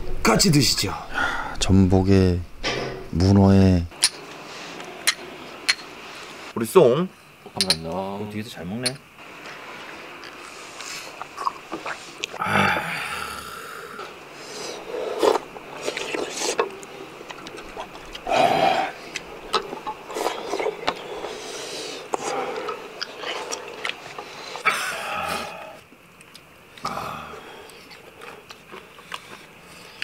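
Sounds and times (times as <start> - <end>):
people slurping porridge: 9.4 - 25.9, 26.7 - 30.0.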